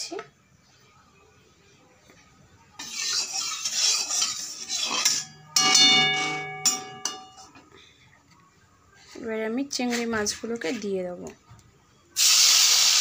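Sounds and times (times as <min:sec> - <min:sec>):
metal spatula scraping pan: 0:02.8 - 0:07.5
metal pan ringing: 0:04.1 - 0:07.6.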